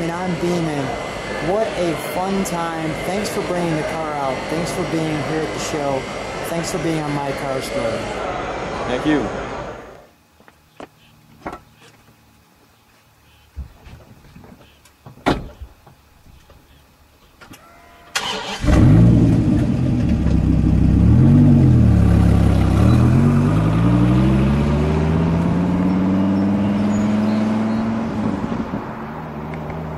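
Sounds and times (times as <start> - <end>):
car engine starting and revving: 18.2 - 29.9.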